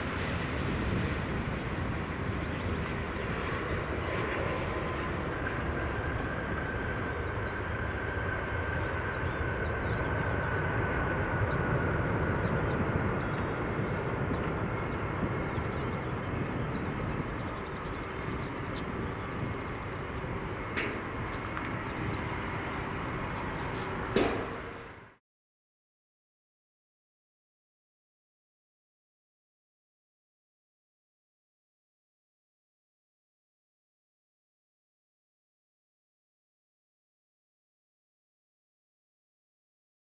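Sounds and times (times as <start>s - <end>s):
distant jet engines rumbling: 0.0s - 25.2s
faint whine dropping in pitch: 0.0s - 25.2s.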